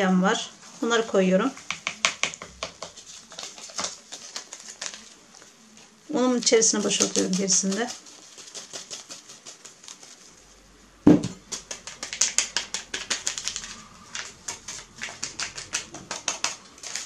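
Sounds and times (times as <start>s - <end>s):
paper sachet tapping glass bowl: 1.6s - 5.0s, 6.4s - 10.0s, 11.1s - 17.0s
knock on glass bowl: 11.1s - 11.4s.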